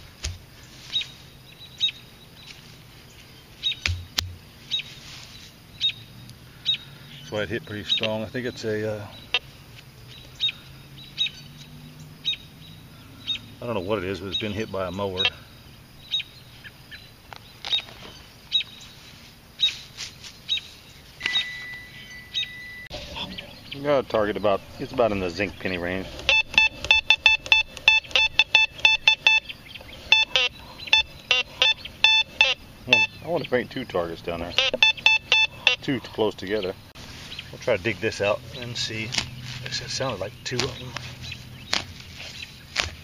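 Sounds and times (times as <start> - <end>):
bird chirping: 0.0 - 43.0
hand digger knocking in turf: 3.8 - 4.5
steady high tone: 21.2 - 23.6.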